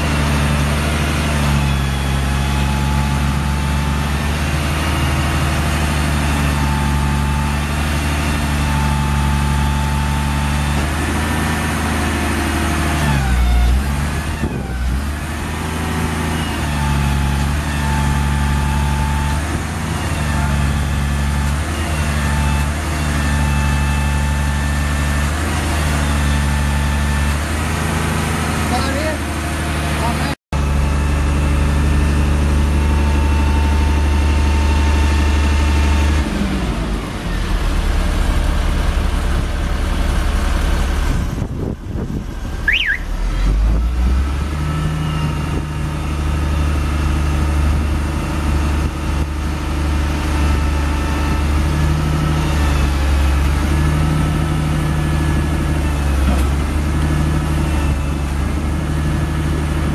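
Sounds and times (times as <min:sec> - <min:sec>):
diesel truck engine running: 0:00.0 - 0:59.9
short high chirp: 0:42.6 - 0:43.2.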